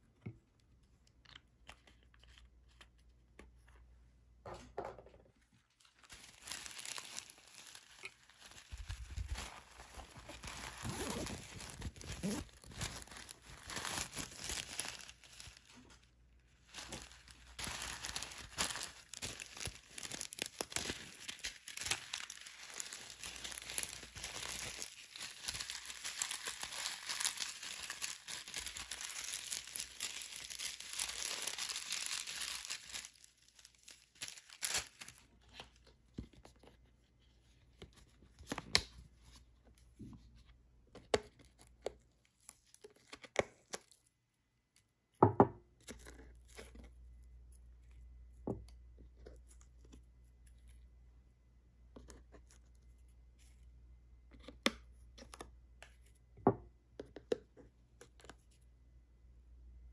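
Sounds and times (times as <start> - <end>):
plastic bag crinkling: 5.8 - 35.3.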